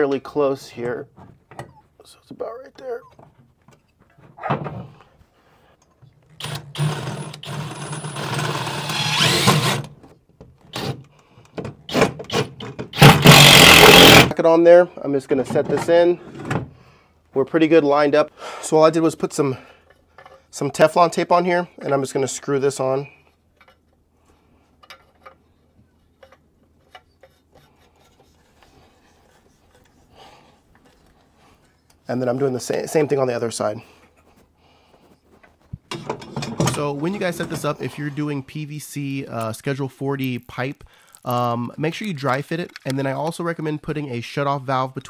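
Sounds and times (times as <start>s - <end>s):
power drill running: 6.4s - 9.9s, 13.0s - 14.3s
pipe fitting being screwed on: 24.8s - 32.0s, 40.2s - 43.0s.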